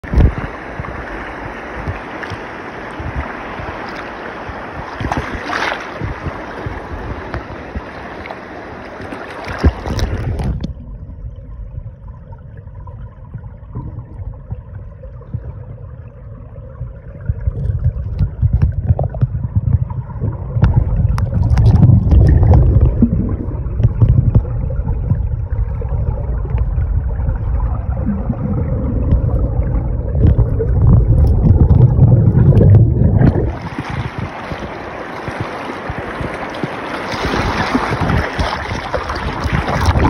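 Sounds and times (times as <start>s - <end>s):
dull underwater knocks: 0.0s - 8.0s, 8.9s - 10.8s, 17.2s - 25.4s, 28.9s - 40.0s
river current rushing and splashing: 0.0s - 10.7s, 30.3s - 40.0s
muffled underwater rumble: 0.0s - 40.0s.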